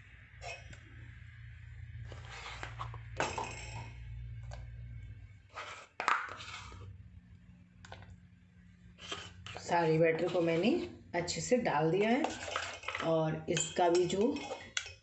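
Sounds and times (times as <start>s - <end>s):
spoon scraping a steel pot: 0.4s - 0.8s, 9.0s - 15.0s.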